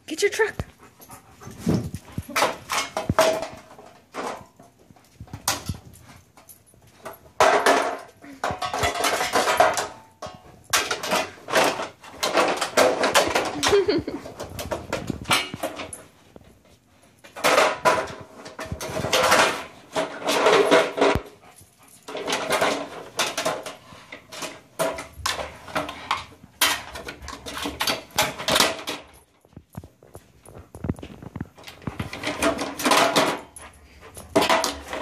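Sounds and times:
toy truck knocking and rattling: 7.0 - 16.0.

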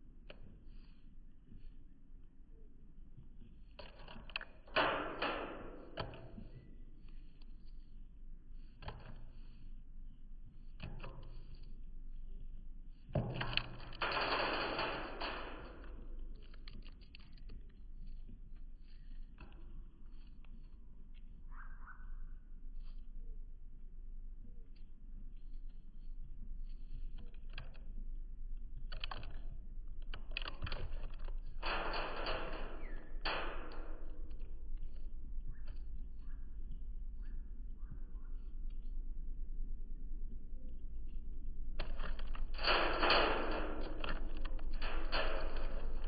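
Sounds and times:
rustling: 41.1 - 46.0.

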